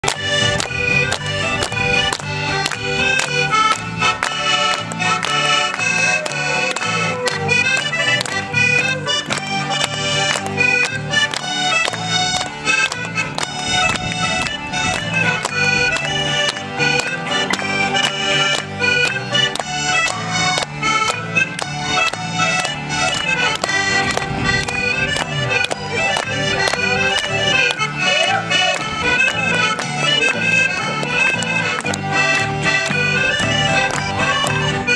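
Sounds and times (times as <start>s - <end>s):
steady beat: 0.0s - 4.2s
accordion playing lively tune: 0.0s - 34.9s
guitar: 0.0s - 34.9s.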